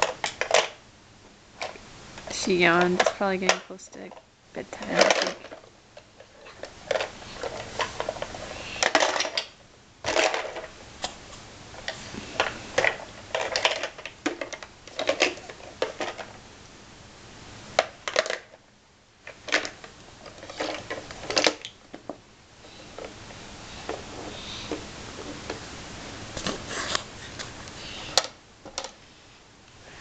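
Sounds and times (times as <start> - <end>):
plastic toy blocks clattering: 0.0 - 0.8, 2.7 - 10.7, 11.8 - 16.4, 17.8 - 18.6, 19.3 - 21.8.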